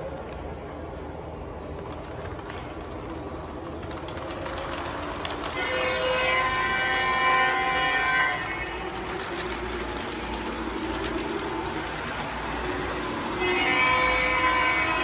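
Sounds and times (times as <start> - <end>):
model trains running on track: 0.0 - 15.0
model train diesel horn: 5.4 - 9.4, 12.5 - 15.0.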